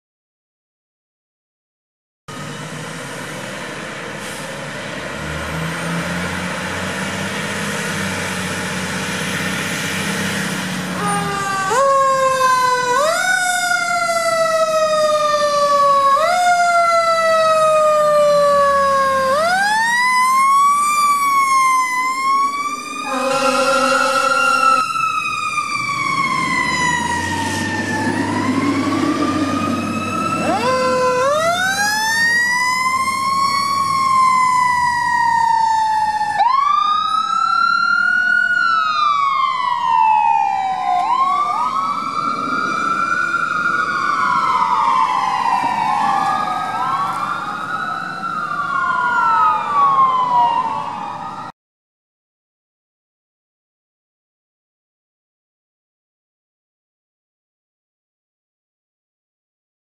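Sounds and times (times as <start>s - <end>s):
sirens wailing: 2.3s - 51.6s
steady horn note: 23.1s - 24.8s.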